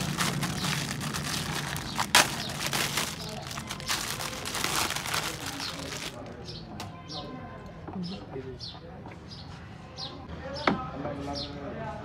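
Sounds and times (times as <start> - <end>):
plastic wrapping crinkling and tearing: 0.0 - 6.4.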